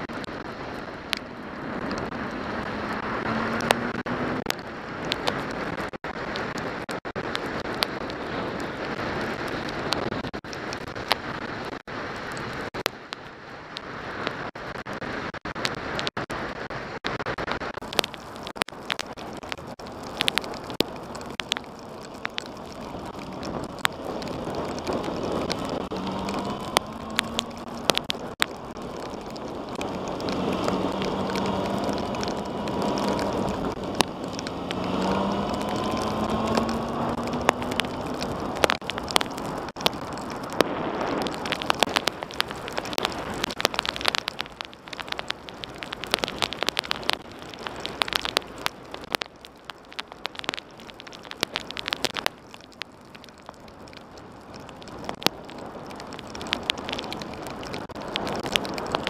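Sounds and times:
raindrops ticking on camera: 0.0s - 59.0s
motorcycle engine revving: 2.1s - 4.7s, 25.6s - 27.7s, 29.9s - 38.0s.

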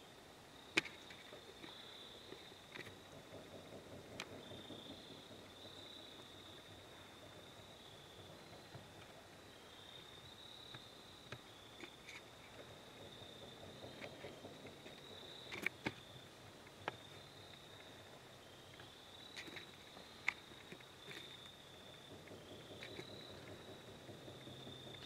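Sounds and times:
faint high whine: 0.0s - 25.0s.

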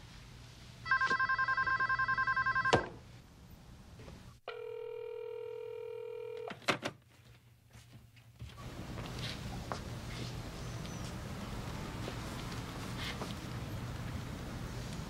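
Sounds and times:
phone warbling ring: 0.9s - 2.9s, 4.5s - 6.5s.

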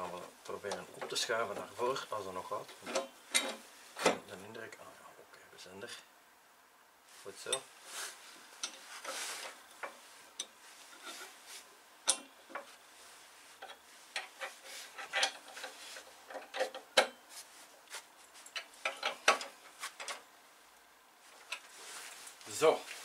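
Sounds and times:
light metal clicks and scrapes: 8.6s - 11.4s, 12.0s - 12.8s, 13.6s - 17.2s, 18.3s - 20.2s.

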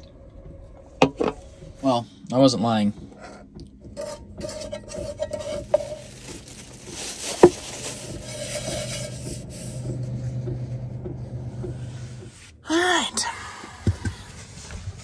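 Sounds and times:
paper towel scrubbing metal pot: 4.0s - 10.8s.

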